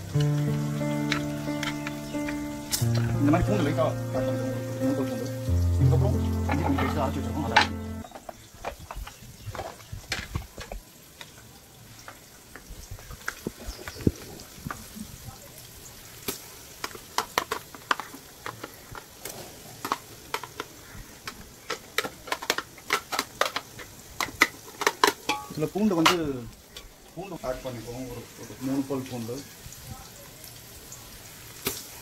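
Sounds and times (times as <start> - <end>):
faint frying sizzle: 0.0 - 32.0
metal spoon clinking on pot: 25.2 - 26.2.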